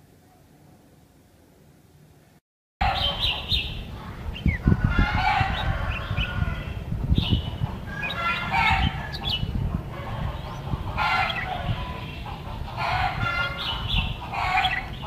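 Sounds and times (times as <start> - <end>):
bird chirps and trills: 2.8 - 15.0
steady low rumble: 2.9 - 15.0.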